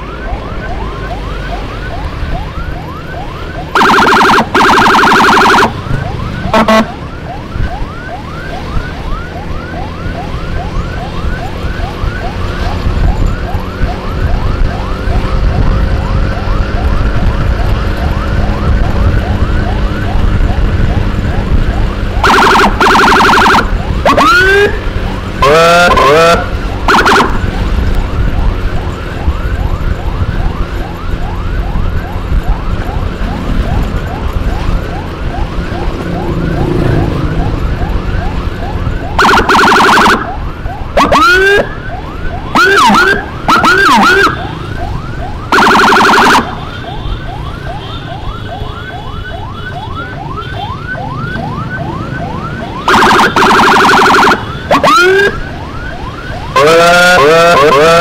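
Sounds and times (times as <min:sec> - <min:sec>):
emergency siren yelping: 0:00.0 - 0:58.0
vehicle engine noise: 0:00.0 - 0:58.0
loud horn blasts: 0:06.5 - 0:06.9.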